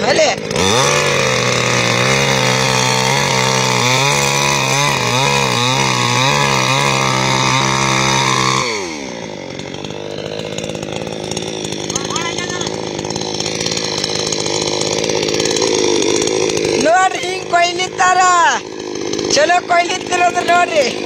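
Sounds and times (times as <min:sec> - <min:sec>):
chainsaw engine cutting stalks: 0:00.0 - 0:21.0.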